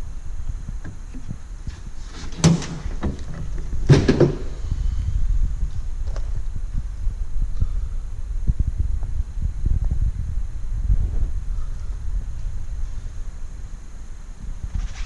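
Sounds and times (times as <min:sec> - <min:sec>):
steady low rumble: 0:00.0 - 0:15.0
knocking and clattering: 0:02.3 - 0:04.6.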